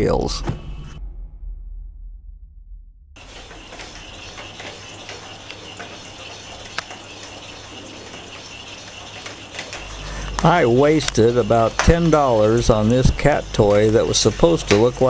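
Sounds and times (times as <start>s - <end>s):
ball clicking on tile floor: 9.2s - 12.6s.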